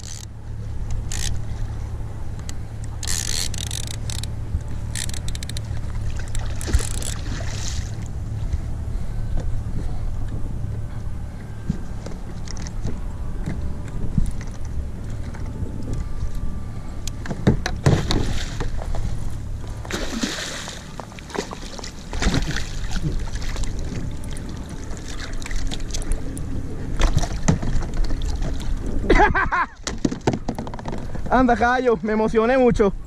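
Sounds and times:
wind rumbling on microphone: 0:00.0 - 0:20.3, 0:21.0 - 0:33.0
knocks against a kayak: 0:17.2 - 0:18.8, 0:29.8 - 0:31.1
fish splashing: 0:19.8 - 0:23.8.

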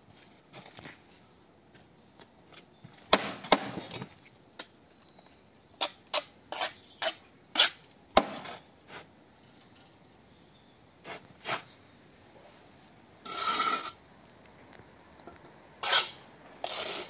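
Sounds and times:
trowel scraping mortar: 0:05.8 - 0:09.1, 0:11.0 - 0:11.8, 0:13.2 - 0:14.0, 0:15.8 - 0:17.0.

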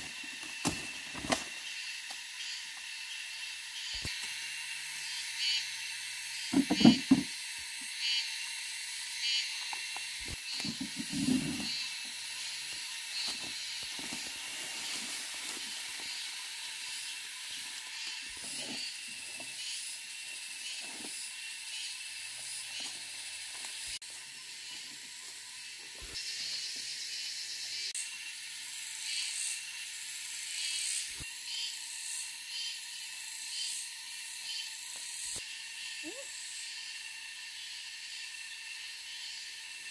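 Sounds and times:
hissing insect chorus: 0:00.0 - 0:39.9
thumps and rustles in undergrowth: 0:13.2 - 0:16.1.

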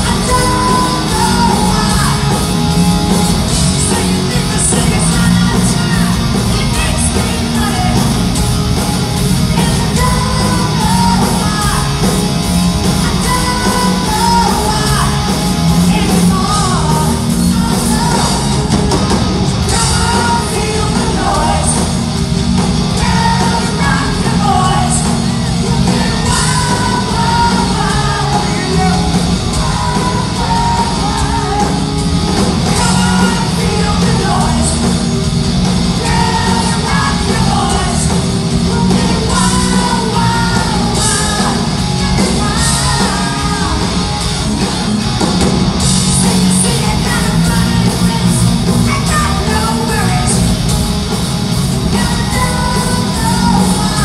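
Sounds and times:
man singing: 0:00.0 - 0:02.5, 0:03.1 - 0:08.2, 0:19.6 - 0:21.9, 0:23.0 - 0:31.9, 0:32.6 - 0:35.0, 0:36.0 - 0:44.0
live hard rock band: 0:00.0 - 0:54.0.

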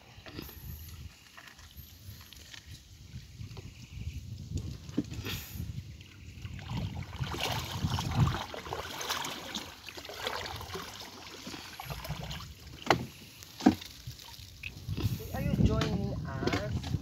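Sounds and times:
water splashing around canoe: 0:04.7 - 0:17.0.

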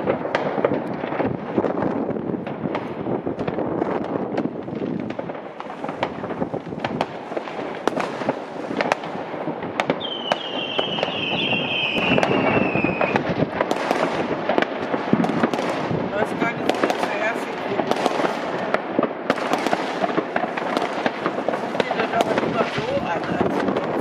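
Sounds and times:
firework bangs and crackling: 0:00.0 - 0:24.0
firework falling whistle: 0:10.0 - 0:13.2.

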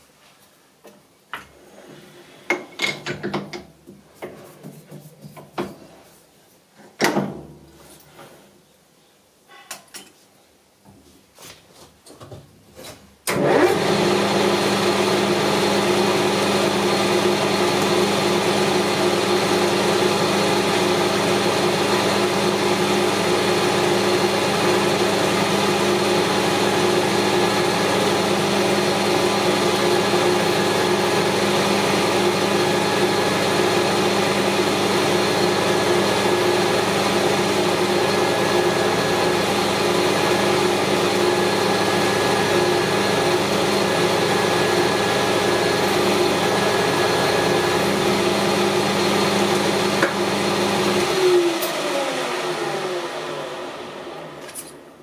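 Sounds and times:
metal lathe humming: 0:13.4 - 0:53.8.

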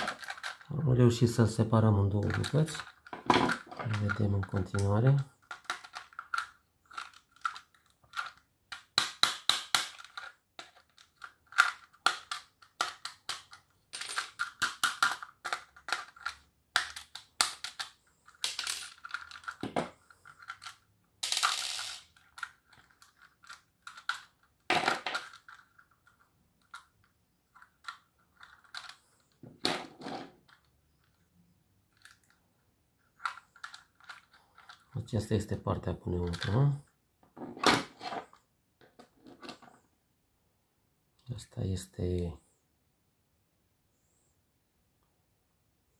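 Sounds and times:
plastic parts clicking and rattling: 0:00.0 - 0:39.8.

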